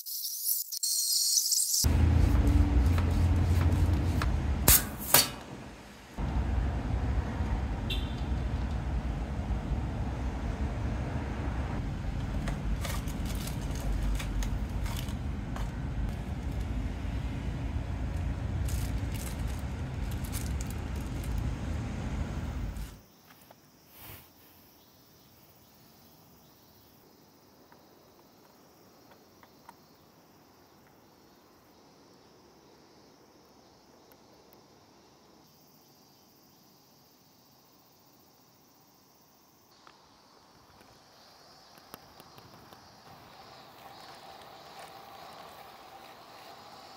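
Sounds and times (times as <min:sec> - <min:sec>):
insect hum: 0:00.0 - 0:46.9
steady low rumble: 0:05.5 - 0:23.0
plastic zip bags crinkling: 0:18.6 - 0:21.4.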